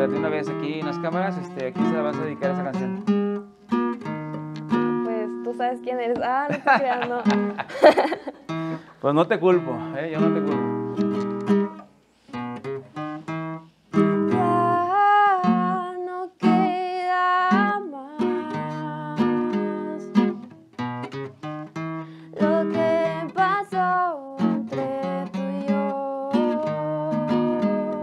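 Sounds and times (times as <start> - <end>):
acoustic guitar strumming chords: 0.0 - 7.8, 8.5 - 28.0
woman singing slow melody: 14.2 - 20.4, 22.3 - 28.0.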